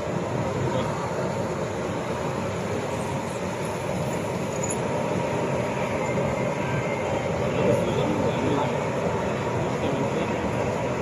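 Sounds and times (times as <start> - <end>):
electric locomotive whirring: 0.0 - 11.0.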